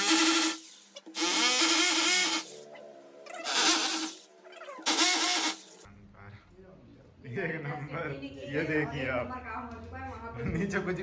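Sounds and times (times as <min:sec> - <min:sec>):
hammer drill boring into wall: 0:00.0 - 0:02.6, 0:03.4 - 0:04.2, 0:04.8 - 0:05.7.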